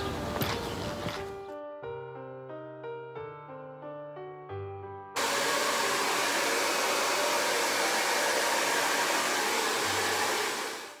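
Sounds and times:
hair dryer running: 5.2 - 11.0.

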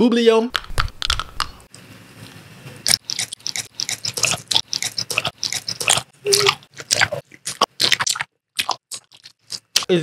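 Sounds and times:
gum chewing smacks and clicks: 2.9 - 9.9.

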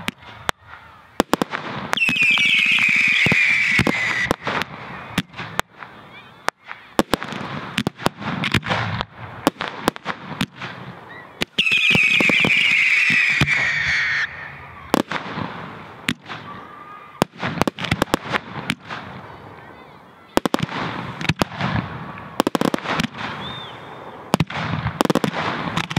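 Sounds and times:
firework bangs and crackles: 0.0 - 25.9
whistling firework screaming: 1.9 - 7.1, 11.0 - 15.1, 22.4 - 25.9.

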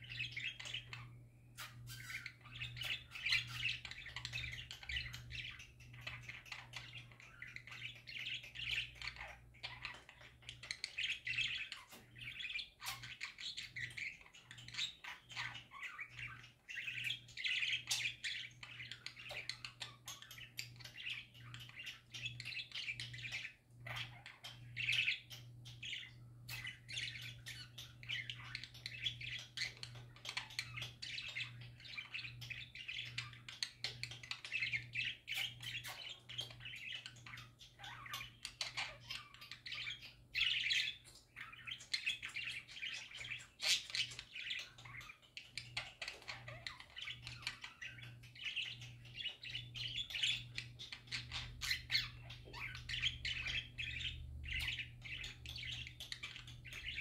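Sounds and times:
budgerigars chattering: 0.0 - 57.0.

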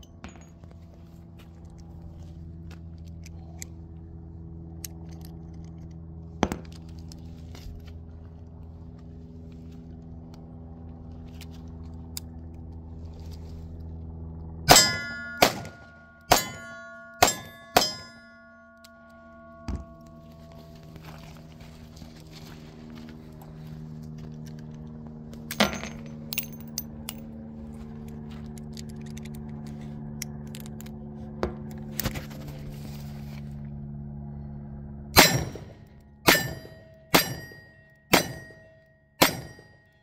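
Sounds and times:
low hum: 0.0 - 40.0
steel plate target ringing: 14.7 - 21.1, 35.2 - 40.0.

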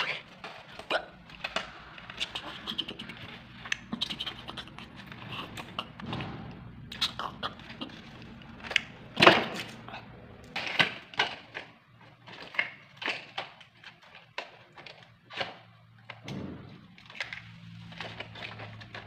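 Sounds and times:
plastic toy blocks clattering: 0.0 - 4.0, 7.3 - 19.0.

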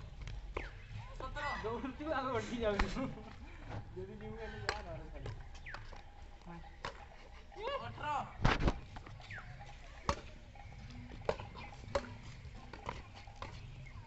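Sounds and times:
rackets hitting shuttlecock: 4.6 - 6.0, 6.8 - 7.1, 9.9 - 13.6.

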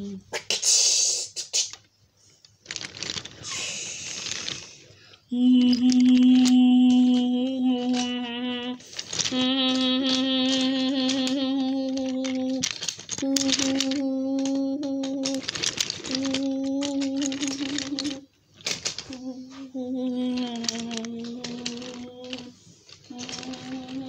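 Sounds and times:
toy train cars rustling on track: 0.6 - 24.0
child humming long notes: 5.3 - 18.2, 19.1 - 22.5, 23.1 - 24.0.

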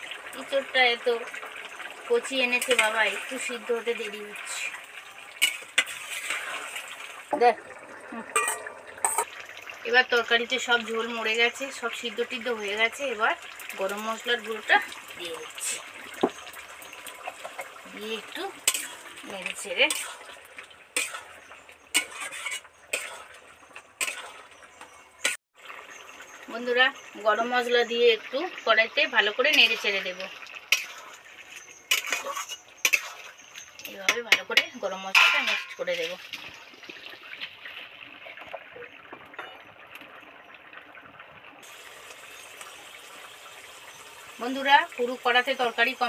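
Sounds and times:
curry bubbling in a wok: 0.0 - 46.0
metal spatula scraping a pot: 5.4 - 7.0, 18.5 - 25.4, 29.5 - 36.0.

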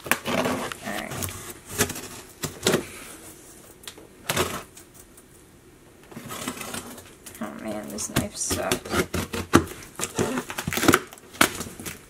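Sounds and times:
knife cutting packing tape: 7.9 - 12.0.

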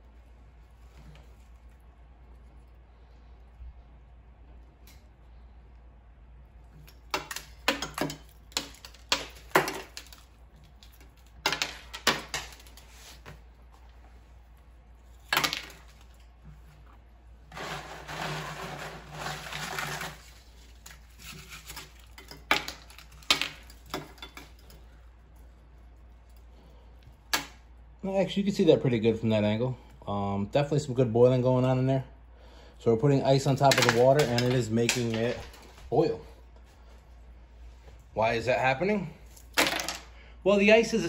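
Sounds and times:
rustling and scraping: 0.0 - 3.6, 9.8 - 26.7.

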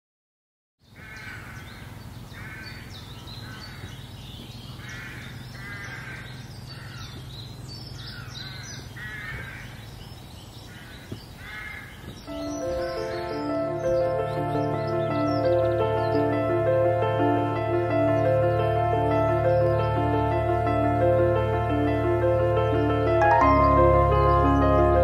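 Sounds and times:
crows cawing: 0.8 - 4.0, 4.8 - 7.3, 8.0 - 9.9, 10.6 - 13.4
high bird chirps: 0.8 - 20.6, 22.6 - 25.0.

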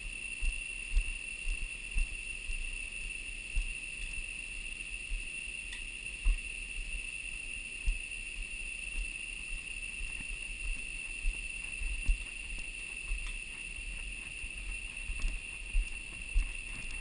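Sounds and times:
insects droning: 0.0 - 17.0
footsteps on plank bridge: 10.0 - 17.0.

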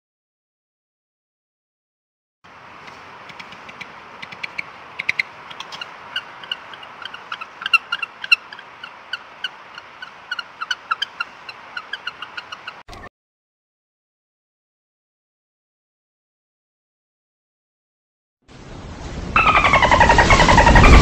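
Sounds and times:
background hiss: 2.5 - 12.8
penguins calling: 3.3 - 12.8, 19.4 - 21.0.

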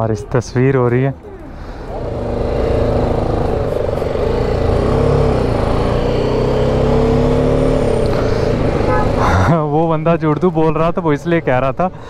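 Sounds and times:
motorcycle engine running: 1.4 - 9.6.

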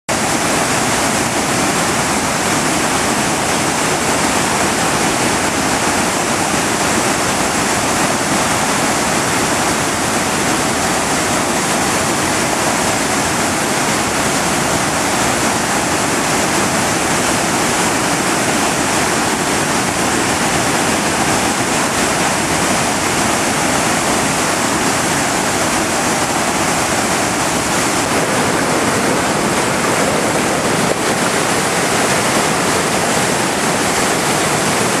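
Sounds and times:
floodwater pouring over dam: 0.1 - 35.0.

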